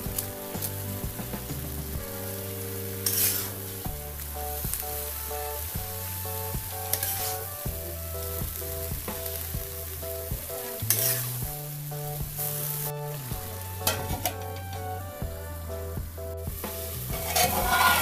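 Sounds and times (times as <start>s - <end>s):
background music: 0.0s - 18.0s
vegetables sizzling in a pan: 0.1s - 11.4s, 12.4s - 14.4s, 16.6s - 18.0s
spatula scraping metal pan: 3.0s - 3.6s, 17.2s - 18.0s.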